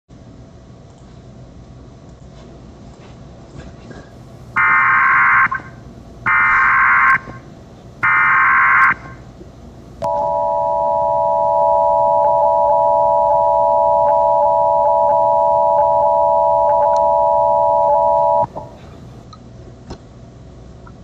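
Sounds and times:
two-tone attention signal: 10.1s - 18.5s.

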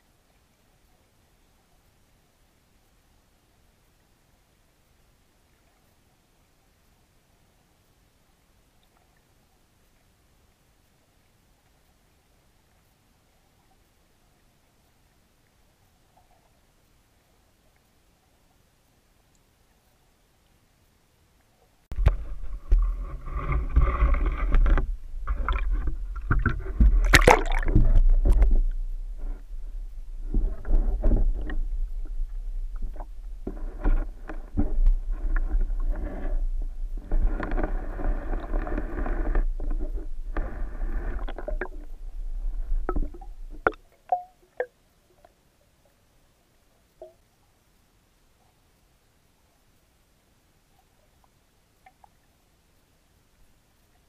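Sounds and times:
water sloshing underwater: 21.4s - 46.0s.

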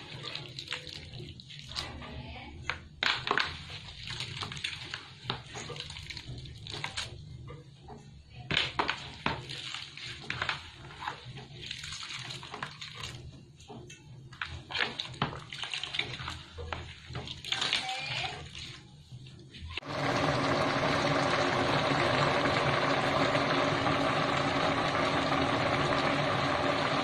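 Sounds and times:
liquid trickling: 0.0s - 1.8s.

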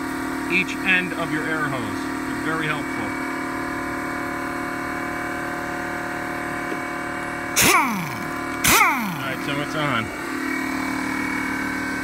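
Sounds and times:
air compressor running: 0.0s - 12.0s
pneumatic impact wrench spinning: 7.6s - 9.6s.

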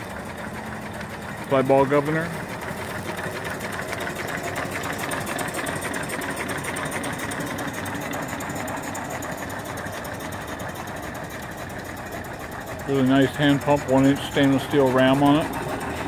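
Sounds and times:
steam engine mechanical clatter: 0.0s - 16.0s.

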